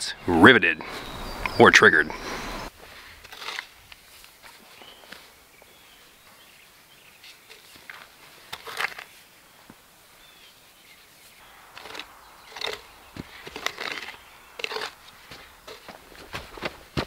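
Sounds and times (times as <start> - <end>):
shovel digging dry soil: 2.9 - 5.3, 7.2 - 9.2, 11.5 - 17.0.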